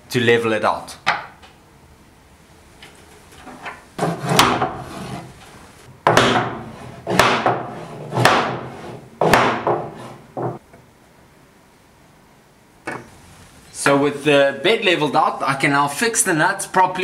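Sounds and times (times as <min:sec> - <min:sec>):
mallet knocking saw bed: 0:04.0 - 0:05.0, 0:06.0 - 0:10.6.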